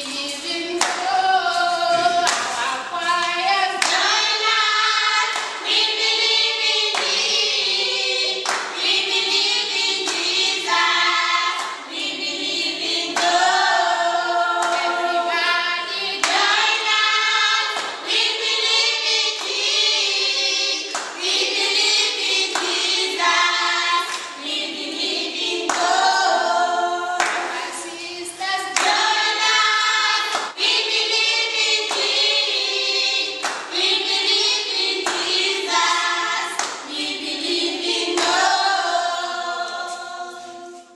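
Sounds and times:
hand claps: 0.0s - 12.0s, 12.8s - 13.7s, 14.6s - 15.1s, 16.2s - 19.9s, 20.8s - 24.4s, 25.4s - 26.1s, 27.2s - 27.8s, 28.6s - 32.6s, 33.2s - 38.8s
group singing unaccompanied: 0.0s - 40.9s.

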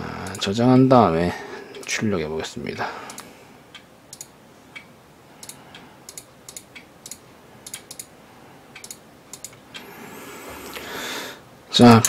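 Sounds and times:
keyboard and mouse clicks: 0.2s - 0.5s, 3.1s - 3.3s, 4.1s - 8.1s, 8.8s - 9.8s.

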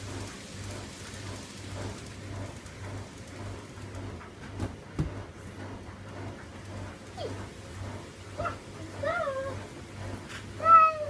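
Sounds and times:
model train rumbling hiss: 0.0s - 4.6s.

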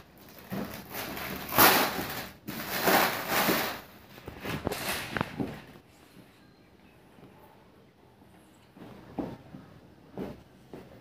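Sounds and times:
plastic wrap crinkling: 0.0s - 5.8s.

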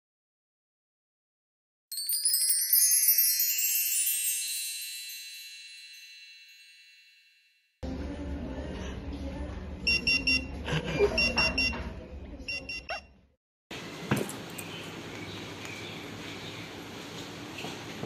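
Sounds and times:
electronic alarm beeping: 9.9s - 10.5s, 11.1s - 11.8s, 12.5s - 13.1s.

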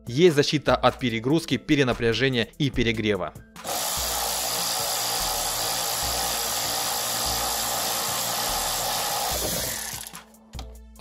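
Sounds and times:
electric ratchet wrench whirring: 3.6s - 10.2s.

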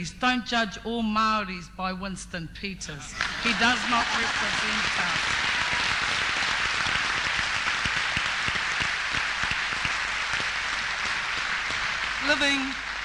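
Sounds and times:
crowd applauding: 3.1s - 13.0s.

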